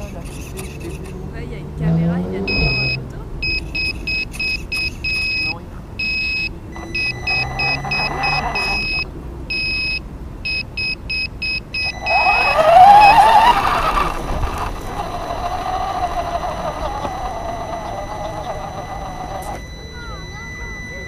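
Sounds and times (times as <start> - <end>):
electronic horn beeping: 2.4 - 21.0
electric motor whining: 6.8 - 9.1, 11.8 - 21.0.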